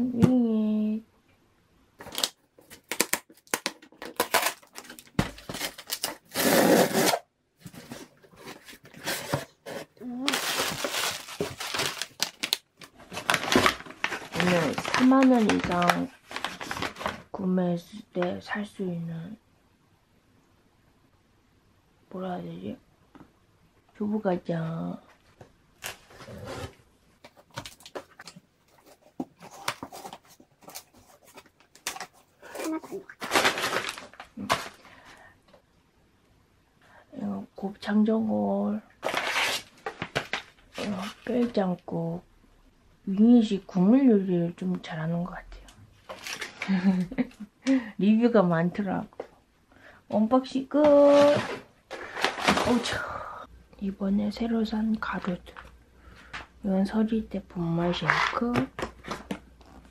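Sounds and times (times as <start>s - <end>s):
packing tape ripping: 2.1s - 7.3s
knife slicing packing tape: 5.9s - 7.2s.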